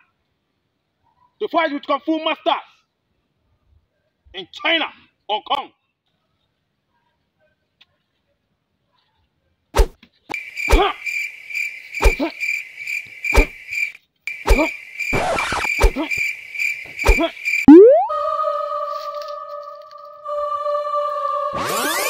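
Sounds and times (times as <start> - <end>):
punch hits with swish: 9.8 - 10.0, 10.7 - 10.9, 12.0 - 12.2, 13.4 - 13.6, 14.5 - 16.1, 17.0 - 17.3
held electronic tone: 17.7 - 18.3
high pulsing chirp: 17.7 - 18.3.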